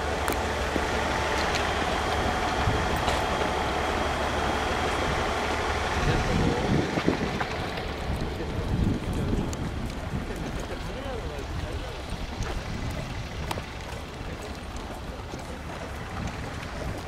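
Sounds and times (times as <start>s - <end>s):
railcar engine rumble: 0.0s - 17.0s.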